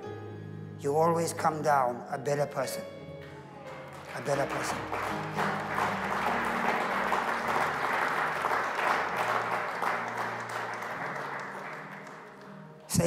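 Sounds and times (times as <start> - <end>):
congregation applauding: 3.2 - 13.0.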